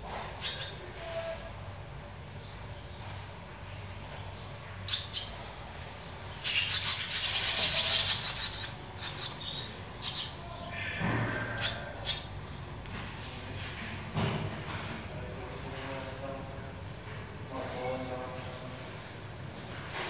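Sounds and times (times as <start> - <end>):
chicks chattering shrilly: 0.2 - 0.9, 4.4 - 12.8
swallows chirping: 0.3 - 0.9, 2.3 - 13.2.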